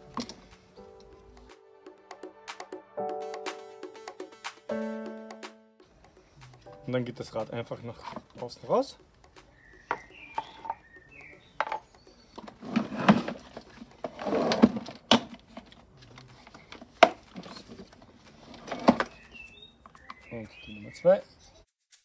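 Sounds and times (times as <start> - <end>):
birds chirping: 5.9 - 14.1, 15.9 - 21.7
plastic scraping: 7.9 - 8.6, 11.6 - 19.5
plastic knocks and clicks: 9.2 - 17.9.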